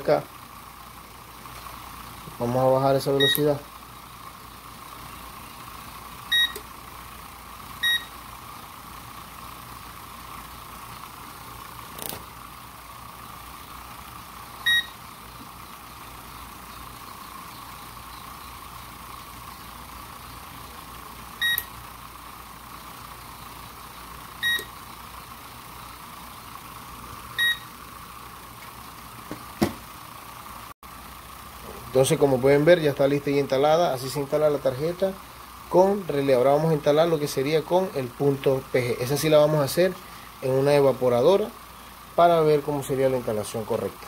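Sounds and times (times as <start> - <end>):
fan motor humming: 0.0 - 44.0
buzzer short beeps: 3.2 - 3.4, 6.3 - 6.6, 7.8 - 8.1, 14.6 - 15.0, 21.4 - 21.7, 24.4 - 24.7, 27.4 - 27.7.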